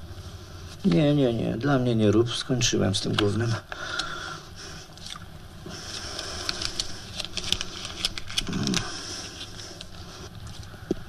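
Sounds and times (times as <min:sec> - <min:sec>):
man chewing: 0:04.8 - 0:11.0.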